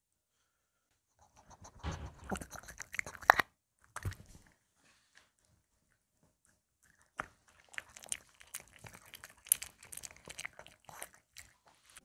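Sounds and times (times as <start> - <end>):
dog chewing food: 1.9 - 4.5, 6.4 - 12.0
small crunches and mouth clicks: 2.2 - 4.6, 5.4 - 12.0.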